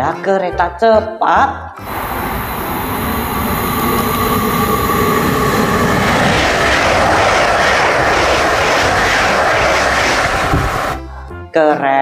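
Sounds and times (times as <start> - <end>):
high-speed train passing: 1.8 - 11.1.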